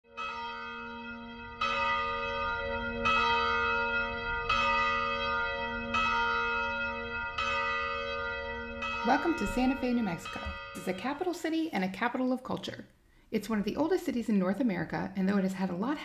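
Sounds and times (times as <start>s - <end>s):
church bell tolling: 0.1s - 11.5s.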